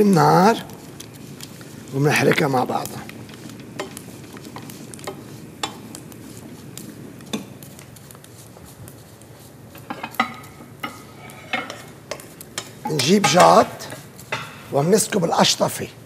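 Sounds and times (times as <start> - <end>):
whisk and spoon stirring in pots: 0.0 - 15.8
metal clinking against pot: 3.8 - 4.0, 9.8 - 14.7.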